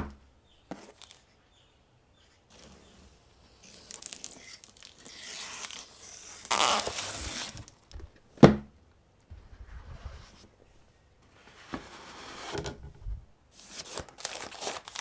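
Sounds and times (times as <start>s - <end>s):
cardboard flaps and tape rustling: 6.4s - 8.0s.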